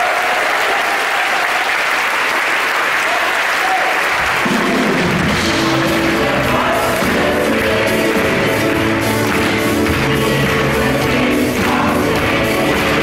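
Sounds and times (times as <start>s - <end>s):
audience clapping: 0.0s - 13.0s
band bass and drums: 4.2s - 13.0s.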